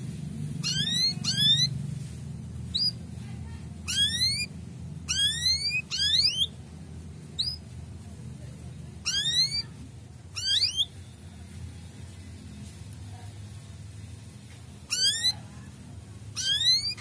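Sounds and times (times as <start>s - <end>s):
canary chirping: 0.1s - 8.0s, 8.6s - 17.0s.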